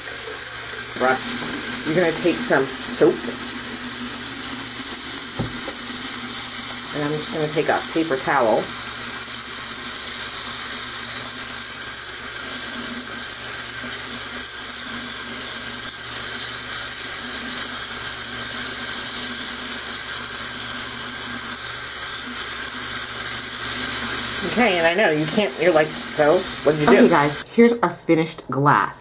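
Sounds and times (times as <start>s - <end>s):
tap water splashing over glass: 1.0s - 6.9s.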